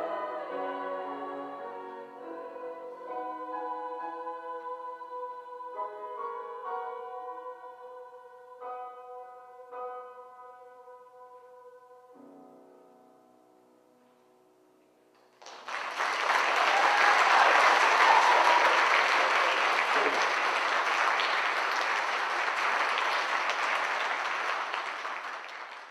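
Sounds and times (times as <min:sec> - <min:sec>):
choir and piano chord: 0:00.0 - 0:13.1
audience applause: 0:15.4 - 0:25.9.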